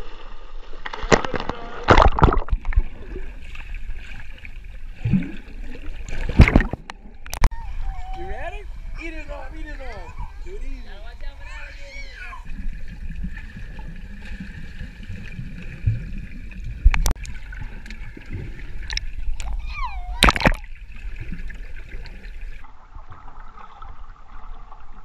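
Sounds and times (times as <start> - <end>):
sharp knocks or splashes: 0.8 - 2.9, 6.1 - 7.5, 20.2 - 20.7.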